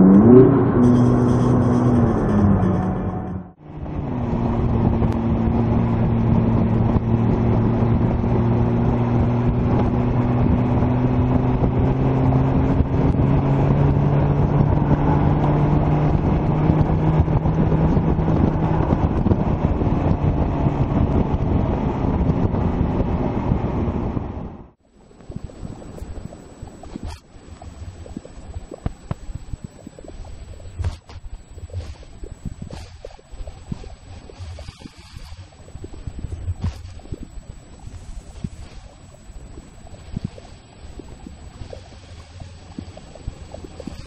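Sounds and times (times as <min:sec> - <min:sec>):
sports car engine cruising: 0:00.0 - 0:24.6
road and wind noise: 0:00.0 - 0:30.1.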